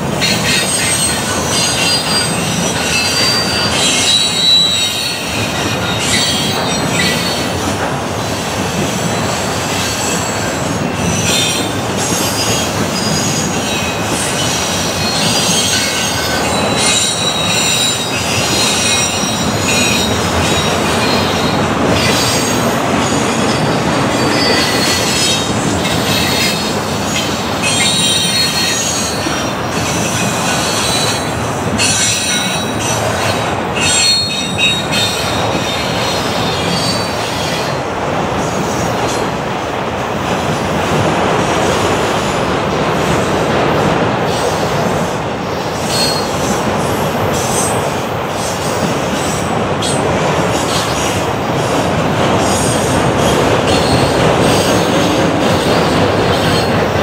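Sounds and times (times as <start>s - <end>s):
steel wheels rumbling on rail: 0.0s - 57.0s
high-pitched wheel squeals: 0.2s - 7.6s, 9.4s - 22.6s, 23.3s - 37.8s, 45.8s - 46.4s.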